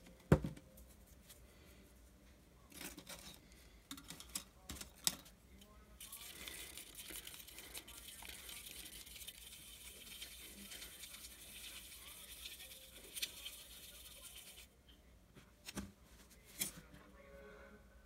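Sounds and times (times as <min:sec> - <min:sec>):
paintbrush scrubbing in cup: 0:06.0 - 0:14.7.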